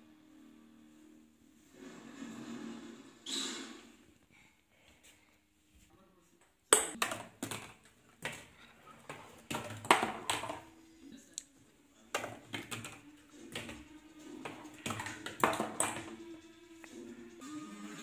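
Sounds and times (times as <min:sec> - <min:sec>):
ping-pong ball rolling through cardboard: 0:06.9 - 0:10.7, 0:12.2 - 0:16.2.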